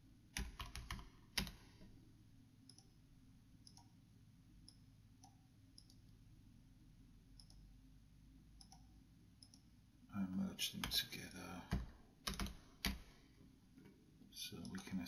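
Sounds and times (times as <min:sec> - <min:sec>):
mouse clicks: 0:03.6 - 0:03.9, 0:07.4 - 0:07.6, 0:08.6 - 0:09.7.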